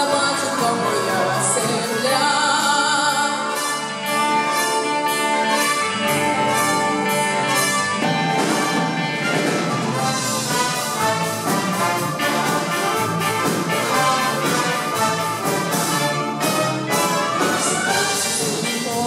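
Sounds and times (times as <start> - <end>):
woman singing into a microphone: 0.0 - 3.5
wind band of saxophones and flute: 3.4 - 18.8.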